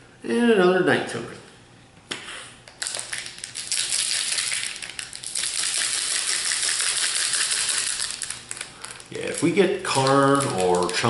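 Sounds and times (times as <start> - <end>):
foil wrapper crinkling: 2.7 - 11.0.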